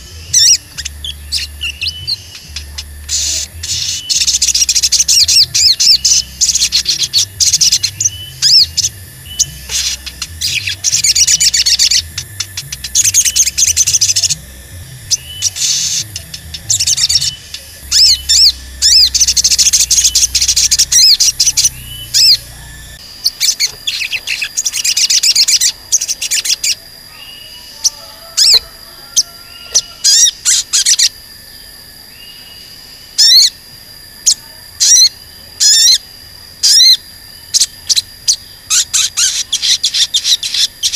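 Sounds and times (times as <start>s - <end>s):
low rumble: 0.0s - 23.0s
bird chirping high-pitched: 0.0s - 31.2s, 36.6s - 40.9s.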